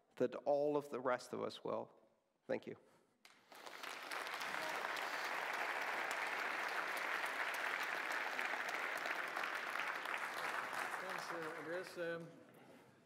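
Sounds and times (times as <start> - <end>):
audience applauding: 3.3 - 12.3.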